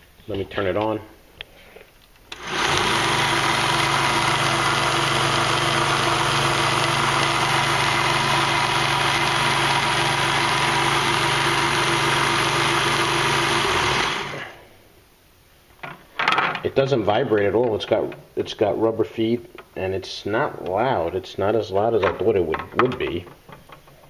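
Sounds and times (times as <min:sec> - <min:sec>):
belt sander motor running: 0:02.3 - 0:14.6.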